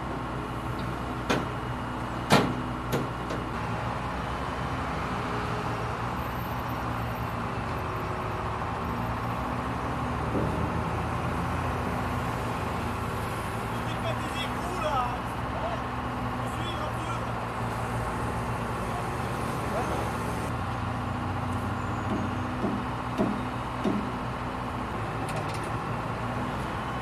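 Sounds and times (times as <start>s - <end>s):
crane engine running: 0.0s - 27.0s
sharp knocks: 22.0s - 24.1s.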